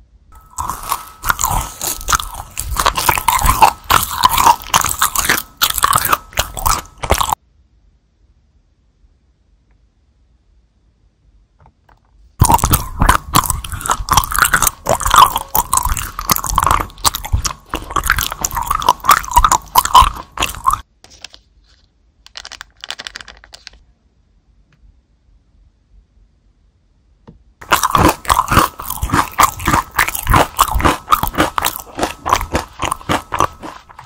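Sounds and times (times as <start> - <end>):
crunching hard candies: 0.4 - 7.4, 12.4 - 21.5, 22.3 - 23.8, 27.6 - 34.0.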